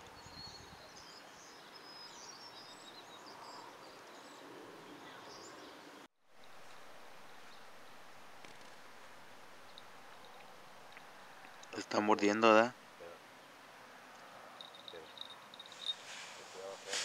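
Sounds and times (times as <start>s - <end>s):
small birds chirping: 0.0s - 13.6s, 14.6s - 17.0s
steady soft hiss: 6.3s - 17.0s.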